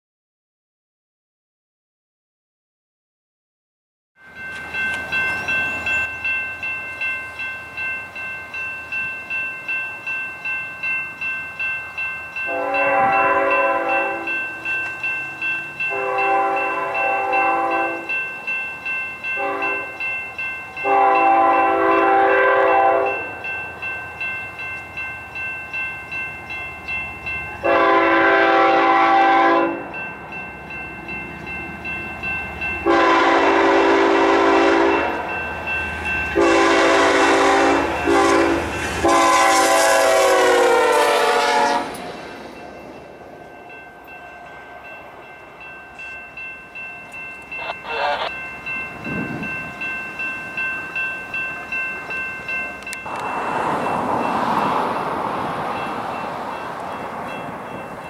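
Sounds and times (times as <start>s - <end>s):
locomotive air horn blasts: 12.5s - 14.4s, 15.9s - 18.1s, 19.4s - 19.9s, 20.8s - 23.2s, 27.6s - 29.9s, 32.8s - 35.2s, 36.4s - 42.2s
wind buffeting microphone: 48.5s - 50.1s.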